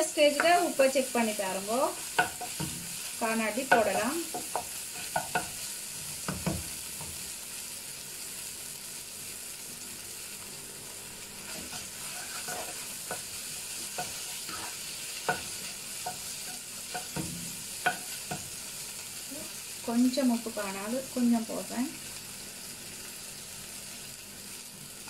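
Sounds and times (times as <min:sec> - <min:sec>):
quiet frying sizzle: 0:00.0 - 0:25.0
spatula scraping wok: 0:00.2 - 0:07.3, 0:11.4 - 0:19.8.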